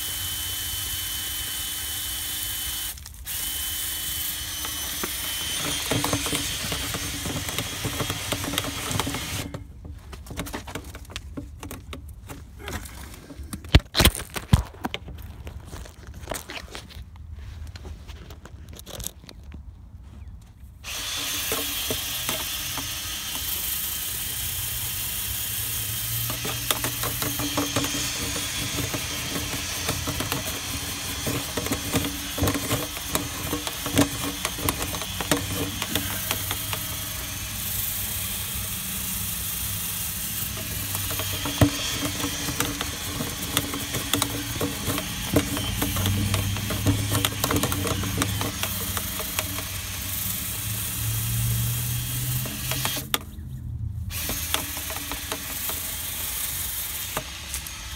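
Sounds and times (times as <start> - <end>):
power drill running: 0.0 - 9.6, 20.8 - 53.2, 54.1 - 57.9
rod knocking and rattling in vent: 5.0 - 12.5, 26.3 - 37.0, 40.5 - 49.9.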